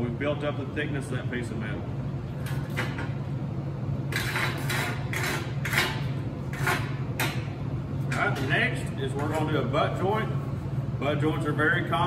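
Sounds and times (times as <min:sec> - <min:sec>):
steady low hum: 0:00.0 - 0:12.0
sharp metal scrapes: 0:04.1 - 0:07.0.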